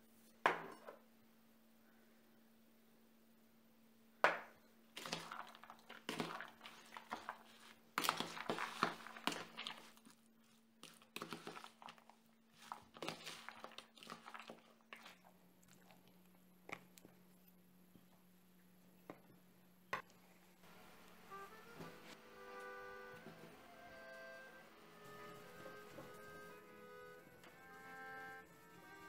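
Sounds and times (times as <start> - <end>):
metal spoon stirring in bowl: 5.0 - 15.2
wet crunchy squelching: 5.0 - 16.9.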